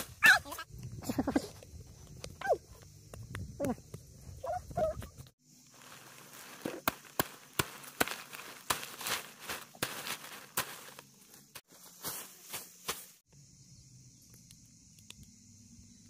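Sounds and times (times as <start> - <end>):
knife chopping ants' nest: 6.5 - 11.0.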